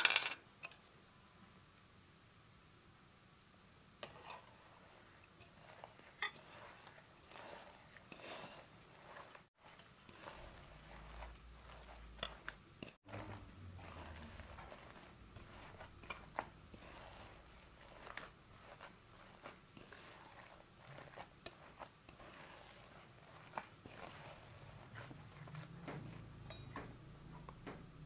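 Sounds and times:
meat mixture squelching: 4.0s - 28.0s.

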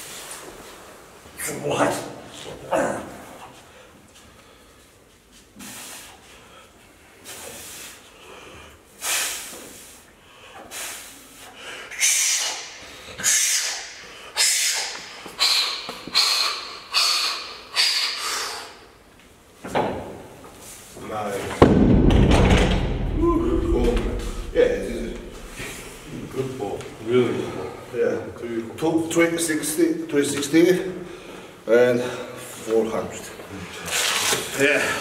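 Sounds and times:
person breathing forcefully: 23.2s - 26.2s.

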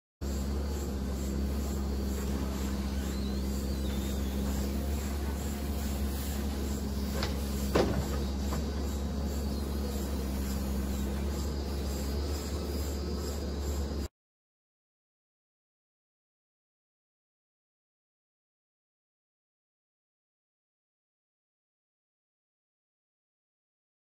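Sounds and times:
diesel engine running under load: 0.2s - 14.1s
sharp knocks: 7.2s - 8.8s.

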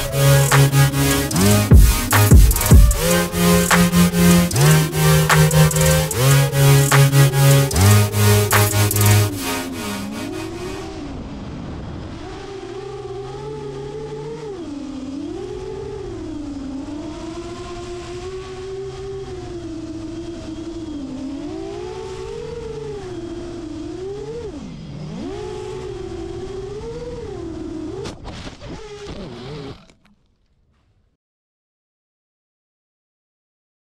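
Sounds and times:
drone motors whining: 0.0s - 11.3s.

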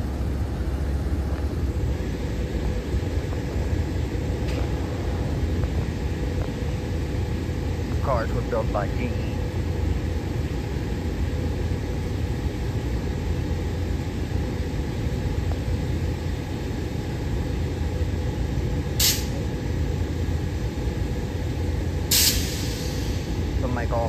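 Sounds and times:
railcar equipment humming: 0.0s - 24.0s
air release hiss: 19.0s - 19.4s, 22.1s - 23.4s.

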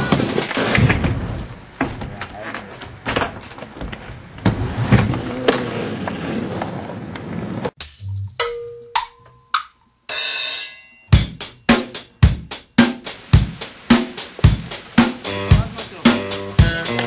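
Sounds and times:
skateboard wheels rolling on wood: 0.0s - 7.8s
drum-kit beat: 7.8s - 17.0s.

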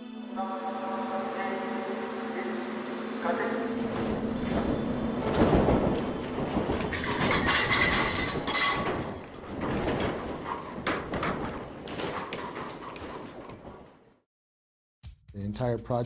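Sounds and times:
timber structure creaking and rattling: 3.8s - 14.2s.

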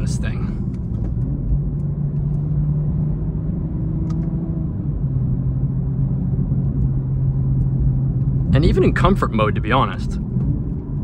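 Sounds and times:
car engine running: 0.0s - 11.0s
road noise: 0.0s - 11.0s.

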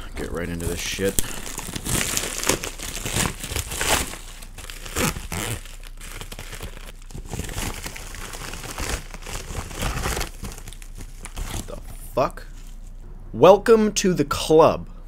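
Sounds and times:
plastic bag tearing and crinkling: 0.2s - 11.9s.

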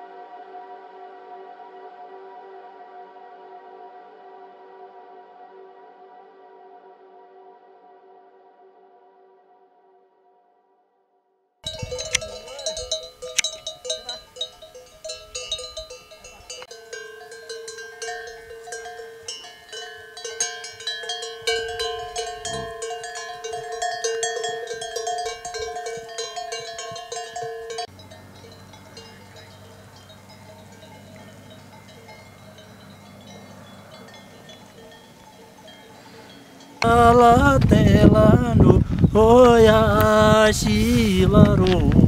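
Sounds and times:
animal bells jingling and clanking: 11.6s - 38.0s.

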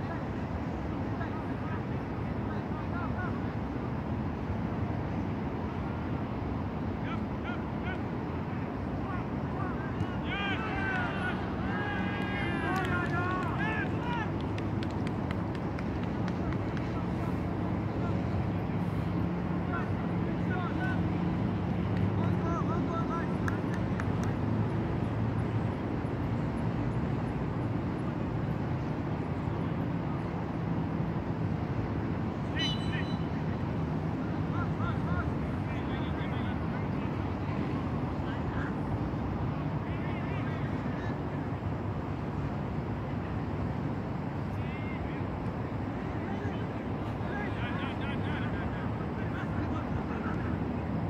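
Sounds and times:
low outdoor rumble: 0.0s - 51.0s
open-field ambience: 0.0s - 51.0s
short high calls: 32.4s - 33.4s.

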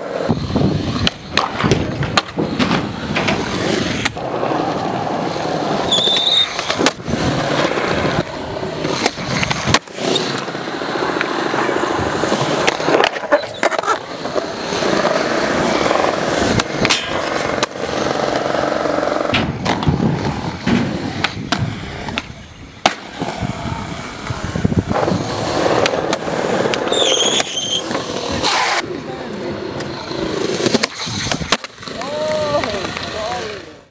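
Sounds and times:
skateboard truck grinding metal rail: 0.0s - 22.2s, 24.4s - 28.8s
skateboard clacks: 0.0s - 33.4s
skateboard wheels rumbling on concrete: 0.0s - 33.9s.

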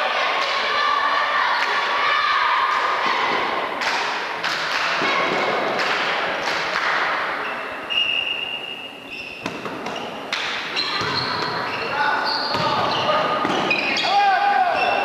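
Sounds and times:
basketball bouncing on wooden floor: 10.9s - 11.6s.

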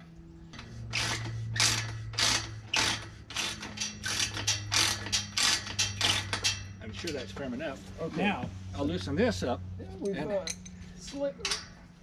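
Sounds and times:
ratchet wrench clicking: 0.6s - 6.8s.

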